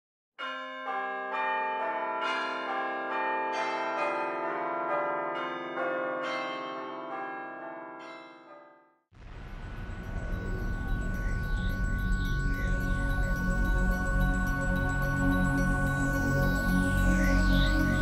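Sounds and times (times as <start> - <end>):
church bells ringing: 0.4 - 8.7, 9.8 - 18.0.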